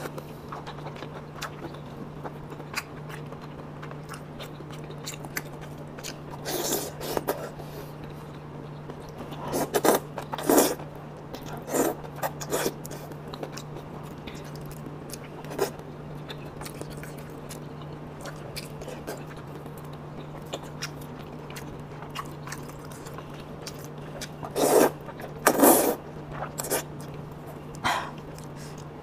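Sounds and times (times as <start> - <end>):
soft chewing and lip smacks: 0.1 - 29.0
loud noodle slurps: 24.5 - 26.0.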